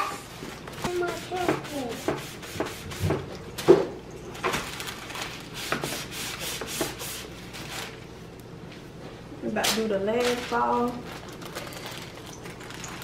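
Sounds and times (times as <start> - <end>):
wax paper crinkling: 4.4 - 5.6, 7.4 - 8.0, 10.1 - 13.0.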